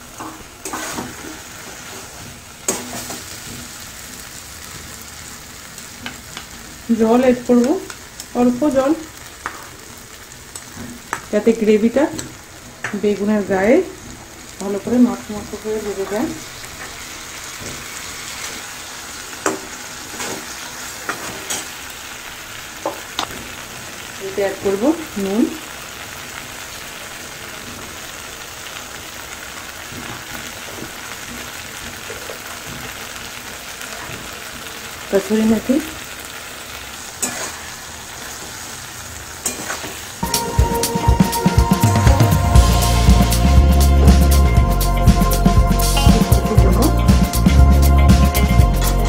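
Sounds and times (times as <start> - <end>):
food sizzling in a pan: 0.0 - 49.0
metal spatula stirring: 0.2 - 2.1, 37.2 - 37.7
metal spatula scraping a pan: 0.2 - 3.7, 19.4 - 21.8, 37.2 - 38.5.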